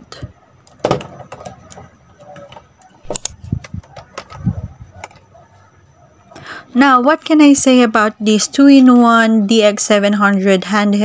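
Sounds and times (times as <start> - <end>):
plastic parts clicking and knocking: 0.6 - 5.3.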